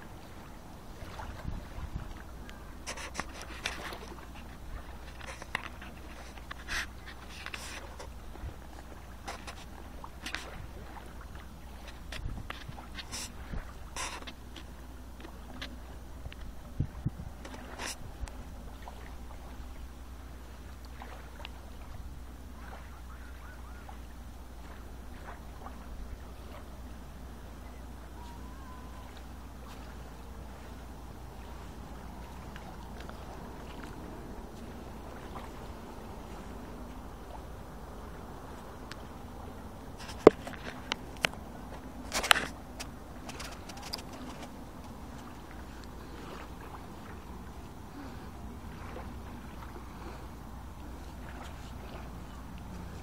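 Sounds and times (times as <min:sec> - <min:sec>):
wind on microphone: 0:00.0 - 0:14.3, 0:15.4 - 0:19.8
rippling water: 0:00.0 - 0:53.0
small waves lapping: 0:00.0 - 0:53.0
wind rumbling on microphone: 0:00.0 - 0:53.0.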